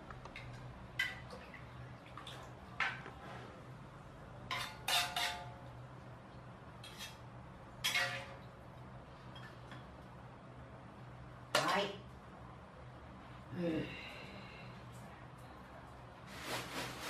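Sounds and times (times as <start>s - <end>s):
metal utensils clinking on cookware: 4.5s - 5.6s.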